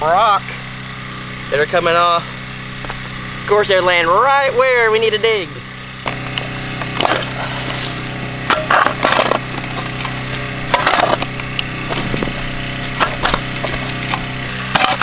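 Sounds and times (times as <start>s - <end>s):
steady low hum: 0.0s - 15.0s
spade digging rocky soil: 6.1s - 15.0s
stones rattling: 8.5s - 15.0s.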